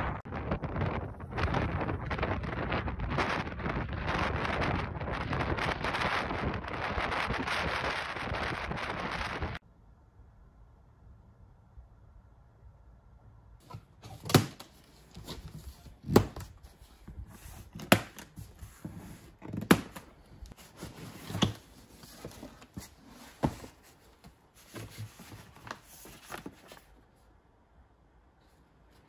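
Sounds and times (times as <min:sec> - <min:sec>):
cardboard rustling: 0:13.6 - 0:27.1.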